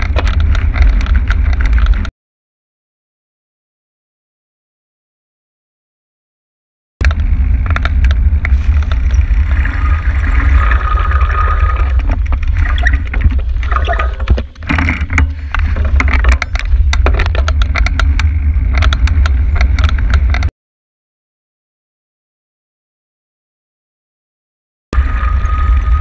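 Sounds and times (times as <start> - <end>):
bike clicking and rattling: 0.0 - 2.1, 7.0 - 20.5
wind buffeting microphone: 7.0 - 20.5.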